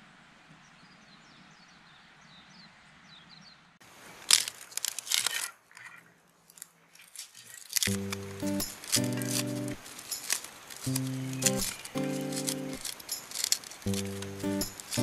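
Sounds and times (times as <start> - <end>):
birds chirping: 7.9 - 15.0.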